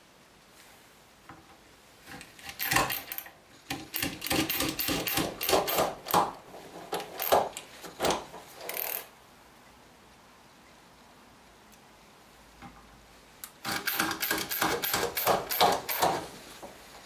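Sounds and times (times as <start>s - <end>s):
screwdriver clicking on metal: 2.2s - 6.3s, 13.4s - 16.2s.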